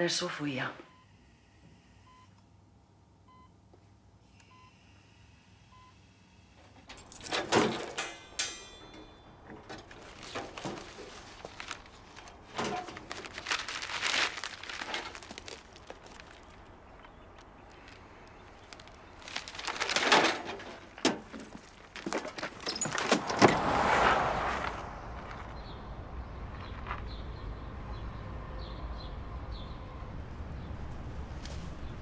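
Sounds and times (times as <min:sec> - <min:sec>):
knocks and clatter: 0:06.8 - 0:13.5, 0:19.4 - 0:23.7
rustling: 0:09.5 - 0:23.4.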